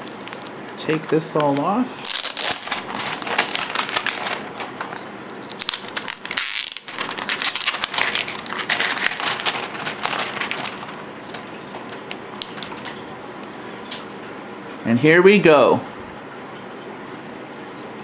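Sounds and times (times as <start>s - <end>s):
plastic sleeve crinkling: 0.0s - 14.1s.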